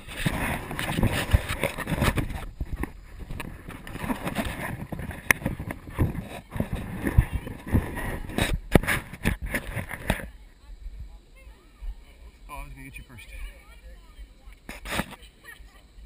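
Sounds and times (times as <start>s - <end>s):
wind buffeting microphone: 0.0s - 12.4s.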